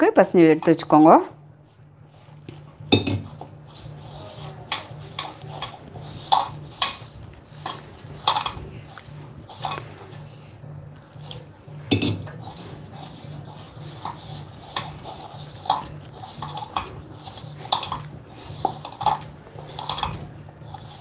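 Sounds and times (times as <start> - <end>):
steady low hum: 0.0 - 21.0
hands scraping dough in bowl: 1.8 - 10.1, 12.1 - 21.0
metal pot knocking down: 11.9 - 12.3.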